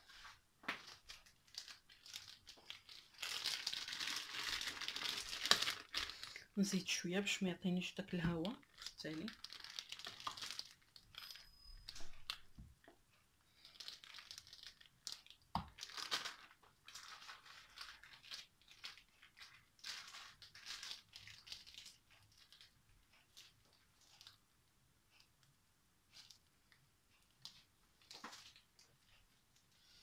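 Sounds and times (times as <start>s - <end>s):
plastic piping bag crinkling: 0.8s - 12.5s, 13.5s - 24.4s.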